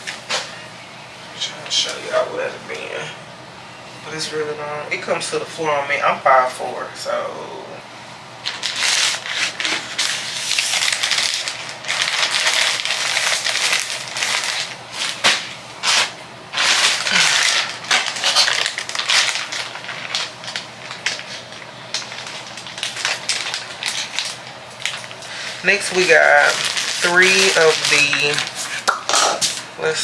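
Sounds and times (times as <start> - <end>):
plastic bag and fabric rustling: 8.4 - 29.7.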